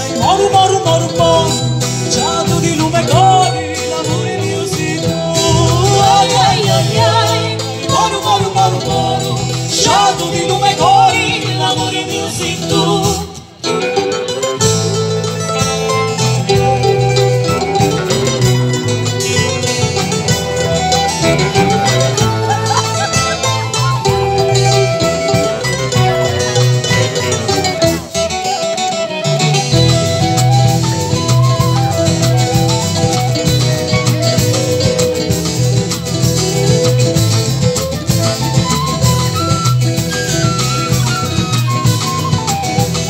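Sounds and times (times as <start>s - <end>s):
person singing: 0.0s - 13.9s
acoustic guitar: 0.0s - 43.0s
bass: 0.0s - 43.0s
drums: 0.0s - 43.0s.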